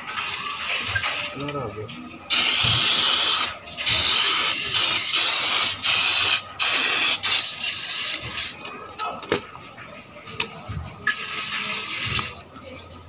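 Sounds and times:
aerosol can spraying: 0:02.3 - 0:07.5.

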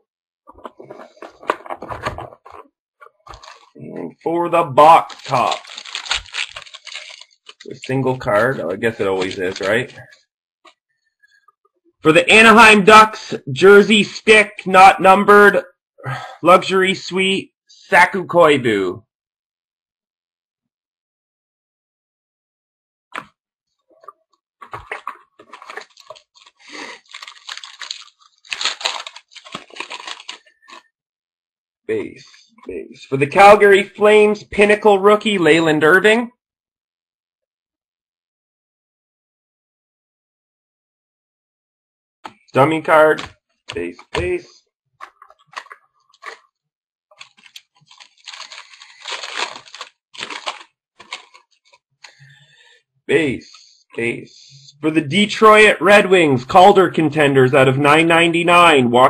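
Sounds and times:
foil wrapper crinkling and tearing: 0:03.3 - 0:03.8, 0:04.8 - 0:10.2, 0:24.8 - 0:30.8, 0:47.2 - 0:52.2.

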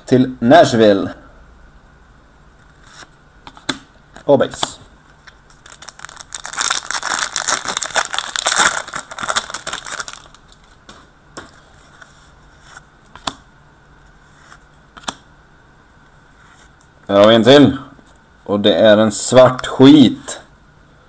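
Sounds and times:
wrapper tearing and crinkling: 0:05.5 - 0:10.8.

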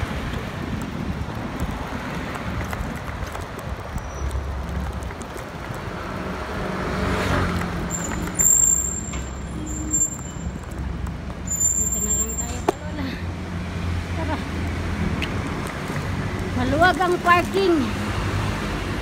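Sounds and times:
traffic rumble: 0:00.0 - 0:19.0
thin high squeal: 0:11.5 - 0:12.6.

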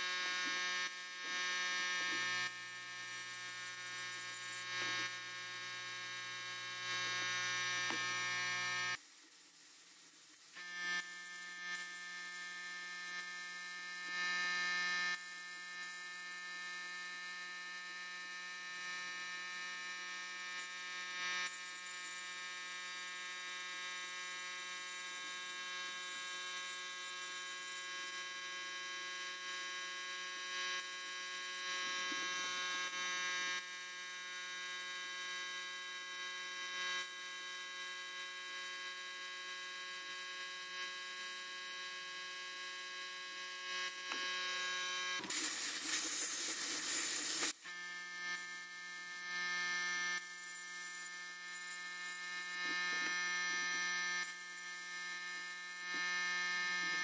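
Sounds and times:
electric hum: 0:00.0 - 0:09.0, 0:38.8 - 0:57.0
blasting hiss: 0:45.2 - 0:47.6.

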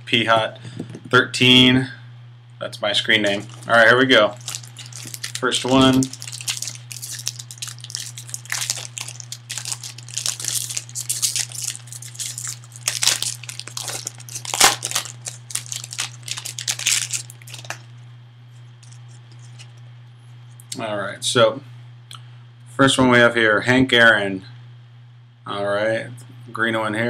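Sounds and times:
steady low hum: 0:00.0 - 0:27.0
foil wrapper tearing and crinkling: 0:03.4 - 0:17.8, 0:18.8 - 0:19.7.

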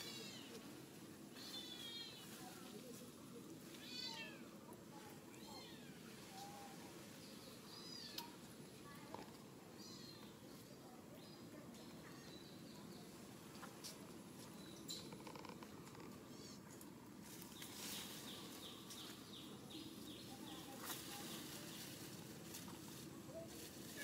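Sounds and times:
low outdoor hiss: 0:00.0 - 0:24.0.

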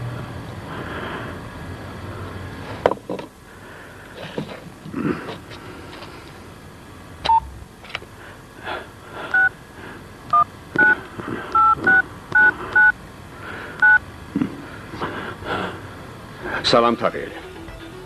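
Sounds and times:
telephone keypad two-tone beeps: 0:11.6 - 0:12.9.

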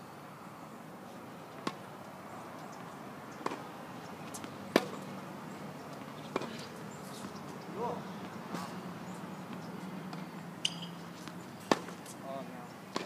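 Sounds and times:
tennis ball bouncing on hard court: 0:03.4 - 0:05.0, 0:06.3 - 0:07.3, 0:09.5 - 0:12.2
tennis ball hit by rackets: 0:03.4 - 0:05.0, 0:06.3 - 0:06.7, 0:09.5 - 0:12.2.

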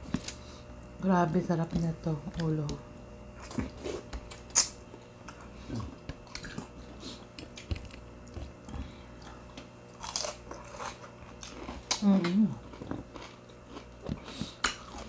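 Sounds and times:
chewing: 0:03.4 - 0:15.0.

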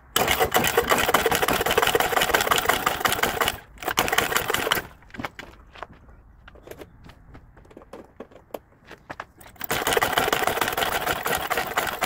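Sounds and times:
scooter engine starting and dying: 0:00.0 - 0:04.9, 0:09.6 - 0:12.0.

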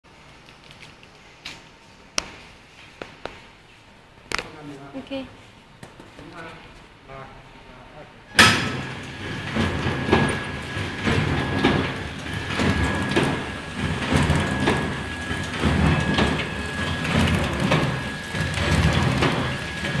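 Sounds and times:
thin steady whine: 0:07.1 - 0:20.0
packing machine clacking: 0:08.4 - 0:20.0.

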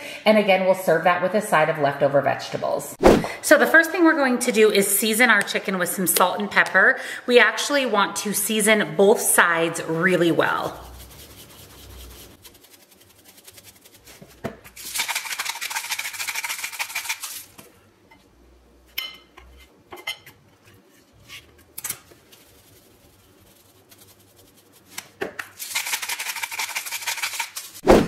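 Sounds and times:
spice grinder grinding: 0:10.6 - 0:14.1, 0:14.8 - 0:17.5, 0:22.3 - 0:27.8.

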